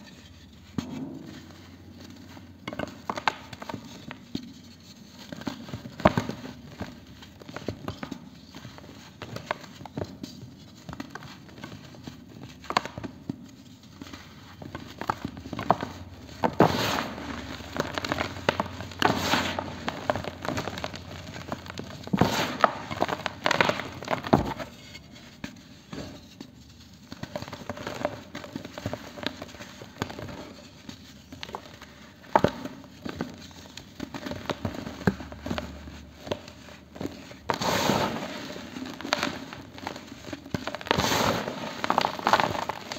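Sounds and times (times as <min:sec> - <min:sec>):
cement pieces crunching and crumbling: 0:37.5 - 0:42.9.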